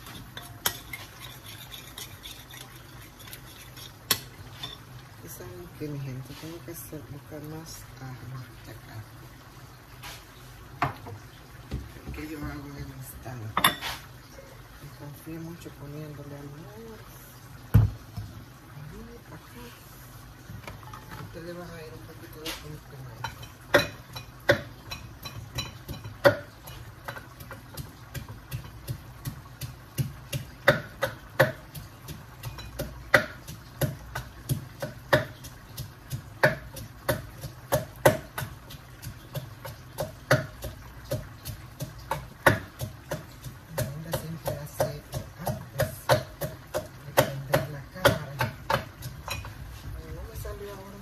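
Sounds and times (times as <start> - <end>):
sharp knocks on kitchen counter: 10.8 - 11.1, 17.7 - 18.0.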